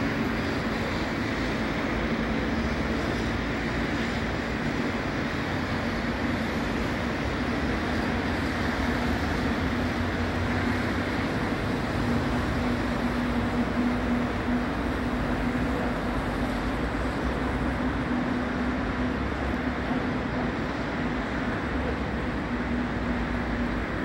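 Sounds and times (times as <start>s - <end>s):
low engine drone: 0.0s - 24.0s
road traffic noise: 0.0s - 24.0s.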